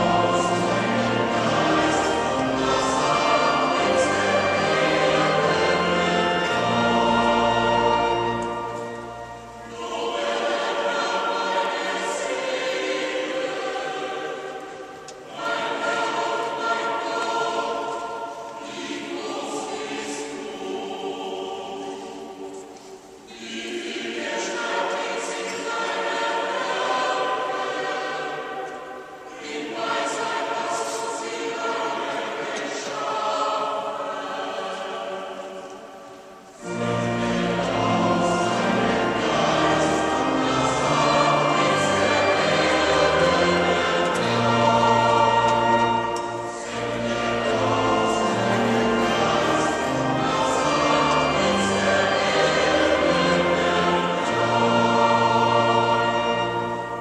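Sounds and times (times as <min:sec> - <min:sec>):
low sustained notes: 0:00.0 - 0:22.5, 0:36.0 - 0:57.0
choir singing: 0:00.0 - 0:57.0.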